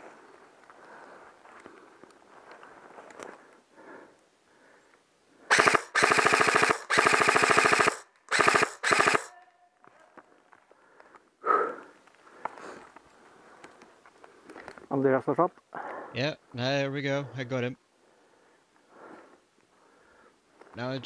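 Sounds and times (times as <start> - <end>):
airsoft rifle firing bursts: 5.5 - 9.3.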